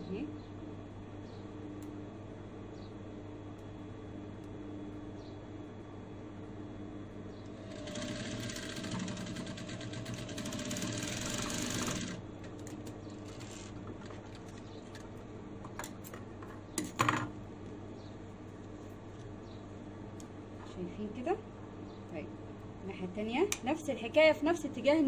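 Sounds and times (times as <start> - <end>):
sewing machine stitching: 7.5 - 12.2.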